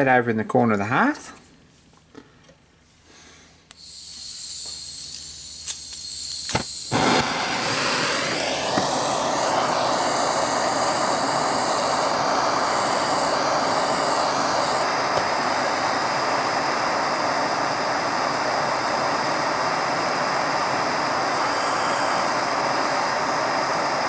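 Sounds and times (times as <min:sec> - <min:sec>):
gas hissing from torch: 0:03.3 - 0:24.0
torch igniter clicks: 0:03.7 - 0:16.6
torch flame roaring: 0:03.8 - 0:24.0.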